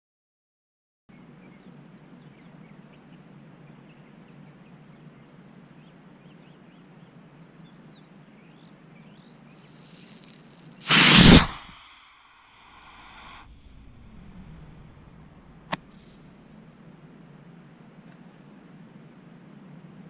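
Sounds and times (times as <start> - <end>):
small birds chirping: 1.1 - 10.9
rising hiss: 9.5 - 16.5
rocket motor rushing blast: 9.6 - 12.0
low background rumble: 13.4 - 17.4.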